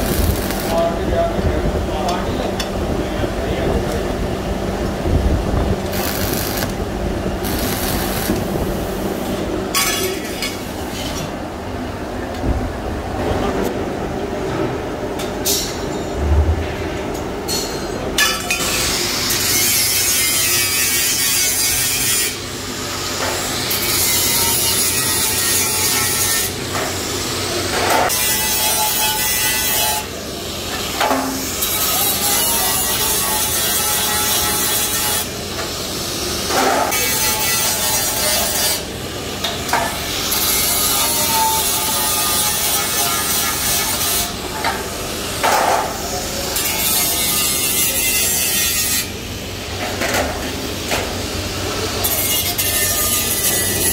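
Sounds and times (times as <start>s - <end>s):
angle grinder grinding metal: 0.0s - 0.8s, 5.9s - 8.6s.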